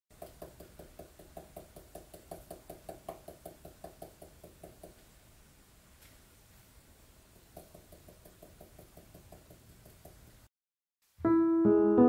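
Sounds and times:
pen nib tapping on paper: 0:00.2 - 0:05.0, 0:07.4 - 0:10.3.

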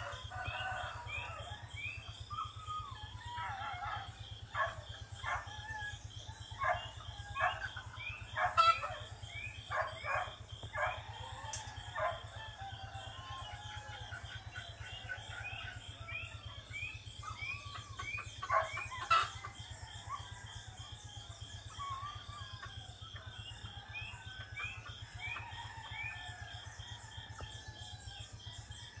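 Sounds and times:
roosters crowing: 0:00.0 - 0:16.3.

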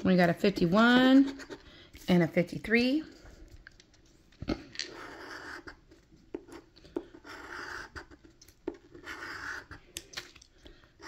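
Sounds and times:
coin scratching a card: 0:04.8 - 0:09.9.

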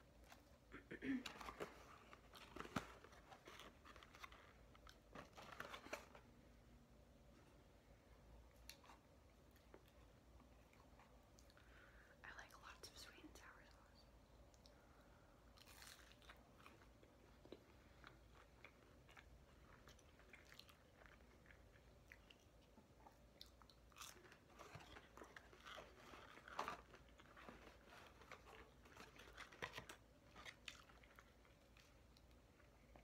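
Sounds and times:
person chewing crunchy food: 0:15.5 - 0:33.0.

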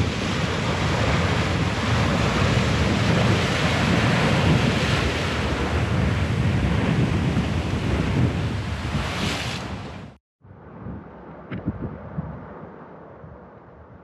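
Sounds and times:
surf churning over rocks: 0:00.0 - 0:10.1.

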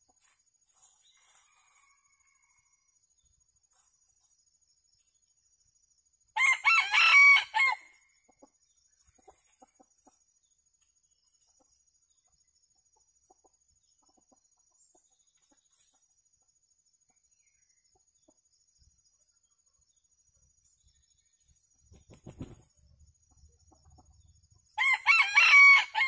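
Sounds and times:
rooster crowing: 0:01.2 - 0:02.9, 0:06.4 - 0:07.9, 0:24.8 - 0:26.0.

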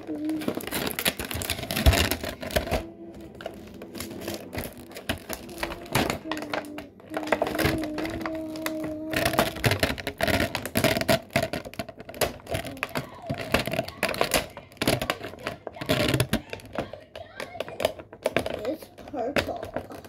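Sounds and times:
plastic container clicking: 0:00.0 - 0:20.0.

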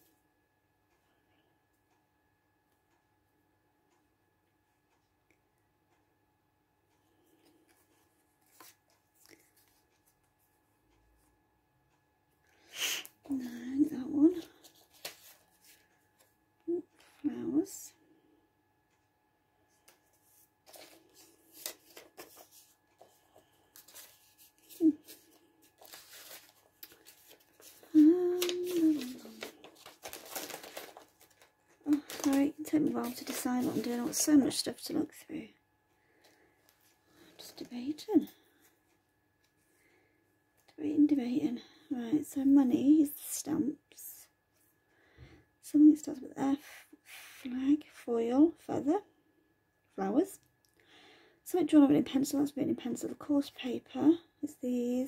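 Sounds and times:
paper taps and rustles: 0:14.6 - 0:16.3, 0:20.6 - 0:34.3
person humming: 0:24.6 - 0:25.3, 0:27.7 - 0:29.6.

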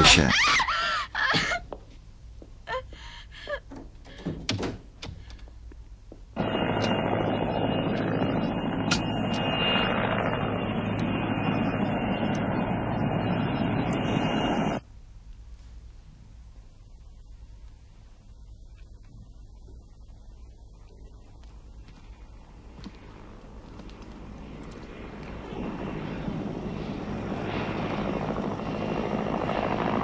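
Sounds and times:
knocks and thuds: 0:03.7 - 0:05.3
helicopter engine and rotor: 0:06.4 - 0:14.8, 0:23.2 - 0:30.0.

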